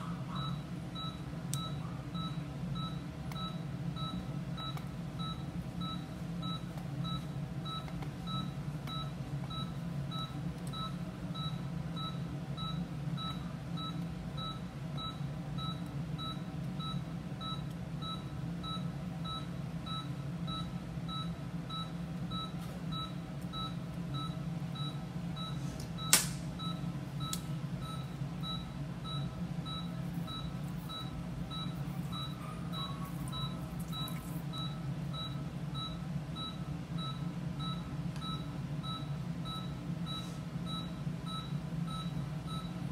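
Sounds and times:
monitor beeping: 0.0 - 42.8
low machine hum: 0.0 - 42.9
sharp click: 26.1 - 26.4.

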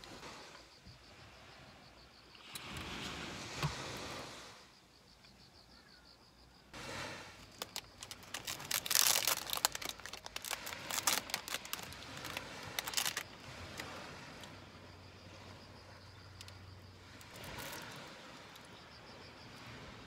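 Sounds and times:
plastic wrapper crinkling: 7.4 - 13.2.

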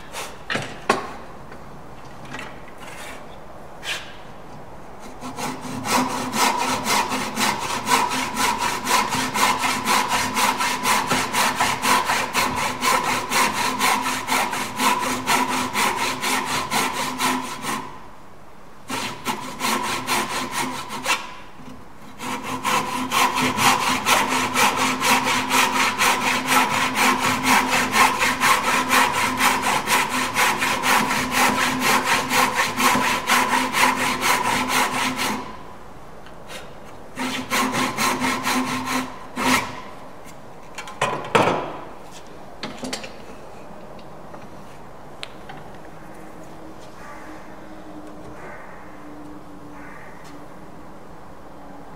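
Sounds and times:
hand saw cutting wood: 0.0 - 1.1, 2.8 - 4.2, 5.0 - 18.0, 18.9 - 35.6, 36.5 - 40.0.

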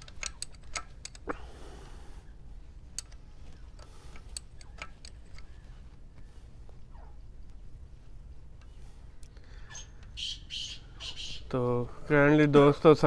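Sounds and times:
metallic clicks of hand tool: 0.0 - 1.4, 3.0 - 3.2, 3.8 - 5.5.

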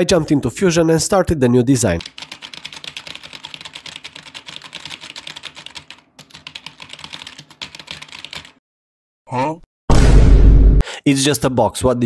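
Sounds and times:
fast typing on keyboard: 2.0 - 8.6.

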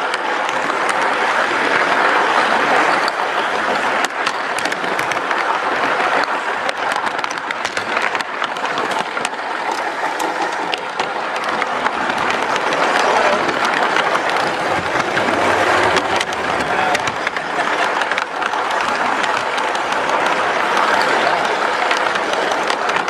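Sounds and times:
model train wheels rattling: 0.0 - 23.0
sharp clicks of train wheels: 0.0 - 23.0.

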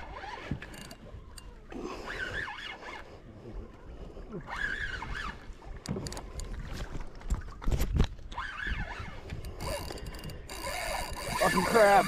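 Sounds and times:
water around boat: 0.0 - 12.0
wind: 0.0 - 12.0.

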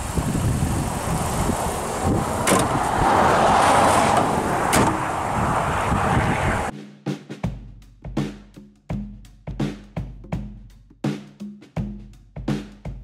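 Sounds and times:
roadside rumble: 0.0 - 6.7
car hood knocks shut: 2.4 - 2.8, 4.2 - 5.0.

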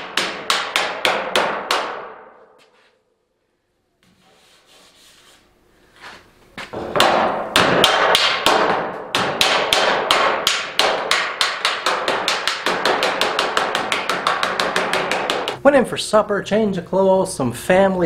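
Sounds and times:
hammer striking sheet metal: 0.0 - 2.6, 6.8 - 15.6.

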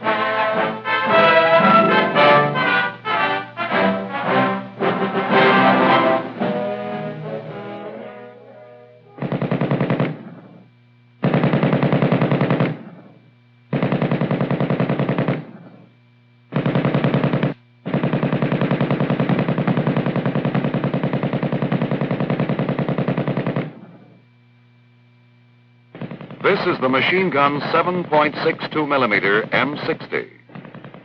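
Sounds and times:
machine gun firing bursts: 9.2 - 10.6, 11.2 - 15.8, 16.5 - 24.0, 25.9 - 31.0.

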